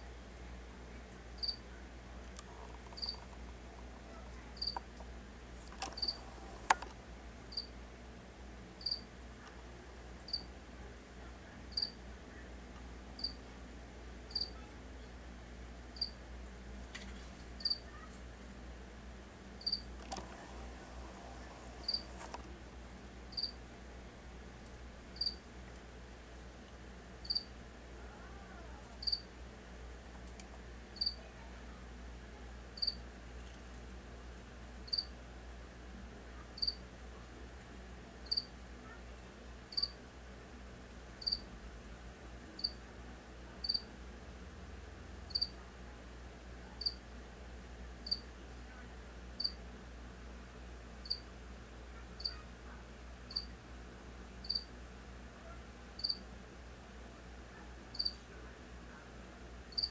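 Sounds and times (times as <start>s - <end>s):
cricket chirping: 1.4s - 1.6s, 3.0s - 3.2s, 7.5s - 7.7s, 8.8s - 9.0s, 14.3s - 14.5s, 16.0s - 16.2s, 19.6s - 19.8s, 23.3s - 23.6s, 25.2s - 25.4s, 27.2s - 27.5s, 29.0s - 29.2s, 34.9s - 35.1s, 41.2s - 41.4s, 43.6s - 43.8s, 45.3s - 45.5s, 51.0s - 51.2s, 54.4s - 54.7s, 56.0s - 56.2s, 58.0s - 58.2s.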